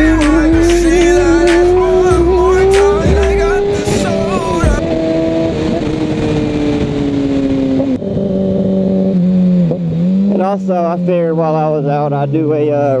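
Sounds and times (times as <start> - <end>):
wind rush: 0.0 - 10.0
motorcycle engine running: 0.0 - 12.4.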